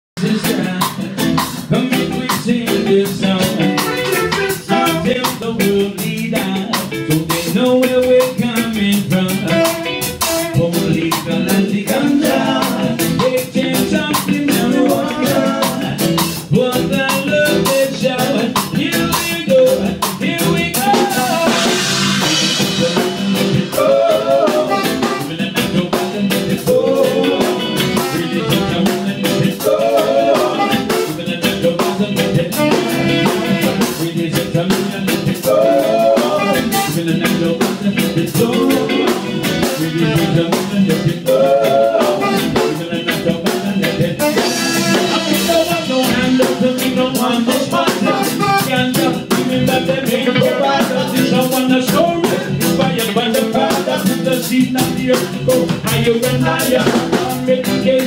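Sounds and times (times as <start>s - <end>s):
drum kit: 0.2s - 58.0s
electric guitar: 0.2s - 58.0s
man singing into microphone: 0.2s - 58.0s
saxophone: 3.4s - 5.4s, 9.3s - 11.1s, 11.9s - 16.2s, 20.7s - 26.0s, 26.6s - 34.3s, 35.4s - 37.7s, 38.4s - 43.2s, 44.0s - 46.6s, 47.7s - 51.7s.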